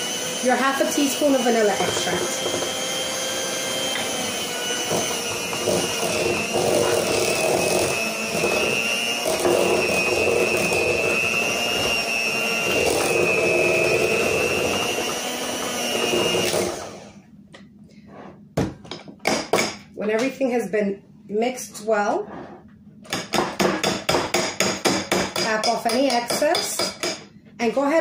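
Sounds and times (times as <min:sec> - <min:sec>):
electric hand mixer whining: 0:00.0 - 0:17.2.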